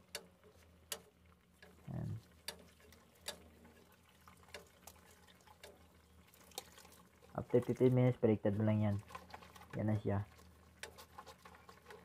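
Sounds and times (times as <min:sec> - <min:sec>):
low steady hum: 0:00.0 - 0:12.0
sauce popping in pan: 0:00.0 - 0:12.0.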